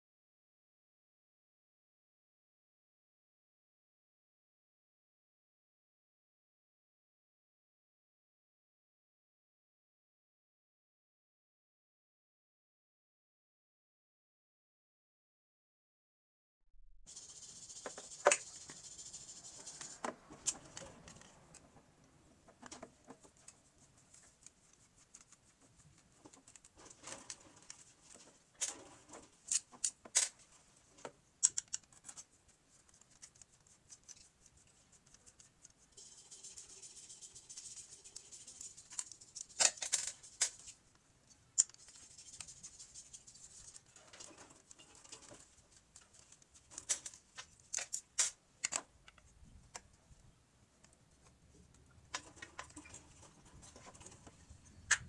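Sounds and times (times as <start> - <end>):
scratchy rubbing: 17.1 - 21.6, 22.4 - 29.8, 31.8 - 40.8, 41.6 - 45.6.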